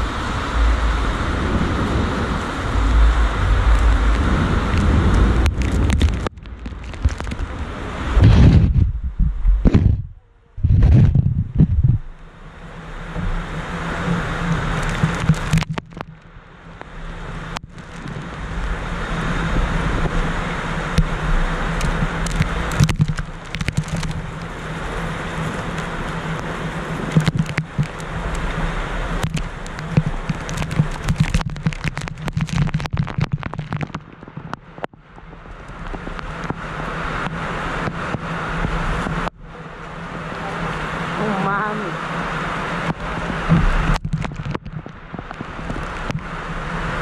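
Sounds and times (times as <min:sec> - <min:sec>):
wind buffeting microphone: 0:00.0 - 0:16.2
heavy rain: 0:00.0 - 0:47.0
raindrops striking camera: 0:02.3 - 0:08.2, 0:13.1 - 0:41.2, 0:42.2 - 0:47.0.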